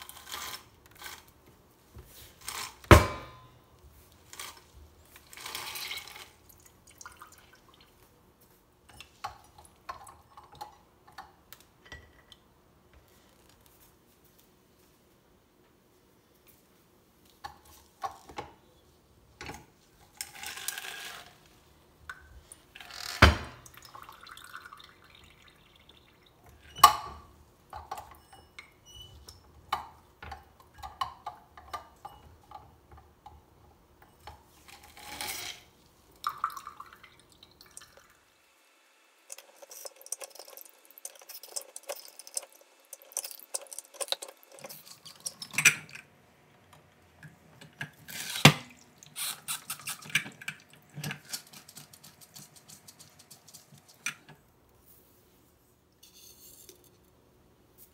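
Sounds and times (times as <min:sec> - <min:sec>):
juice dripping into a cup: 0:05.4 - 0:08.1, 0:23.6 - 0:26.8, 0:36.1 - 0:38.3, 0:39.3 - 0:45.7.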